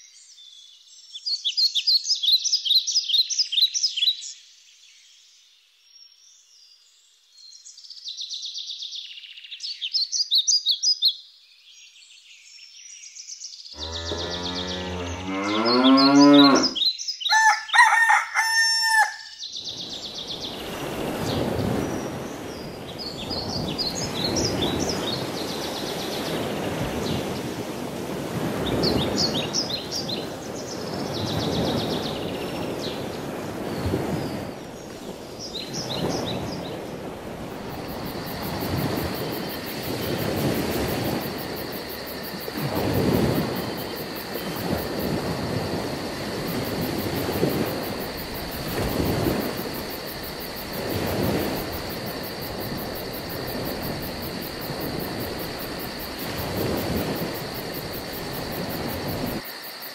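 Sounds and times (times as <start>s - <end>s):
cow mooing: 13.8s - 16.8s
high broken crowing call: 13.8s - 19.4s.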